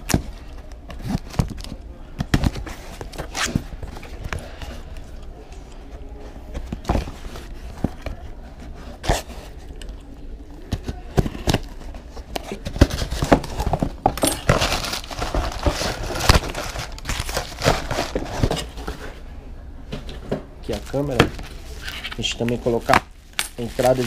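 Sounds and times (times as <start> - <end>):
packaging crinkling and tearing: 12.4 - 18.8, 20.7 - 24.0.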